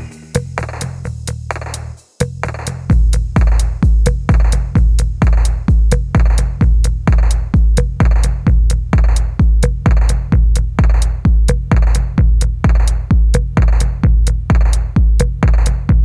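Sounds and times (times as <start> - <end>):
electronic hip-hop beat: 0.0 - 16.0
heavy bass kicks: 0.0 - 16.0.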